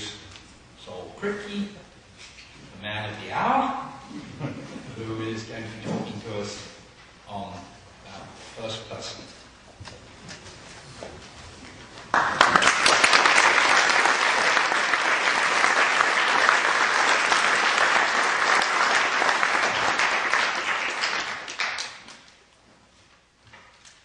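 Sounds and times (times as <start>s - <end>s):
audience applauding: 12.1s - 22.3s.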